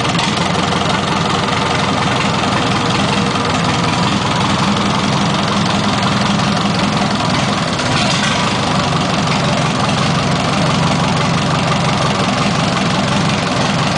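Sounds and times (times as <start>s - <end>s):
diesel engine idling: 0.0s - 13.9s.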